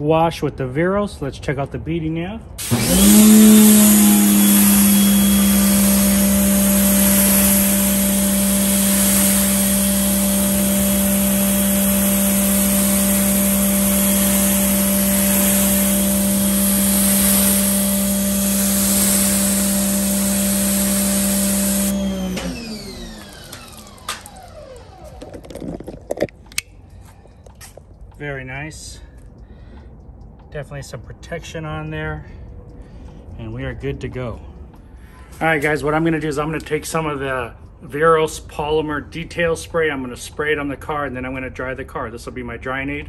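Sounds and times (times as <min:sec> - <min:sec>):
water spray hissing: 0:02.6 - 0:25.4
pressure washer motor hum: 0:02.6 - 0:26.6.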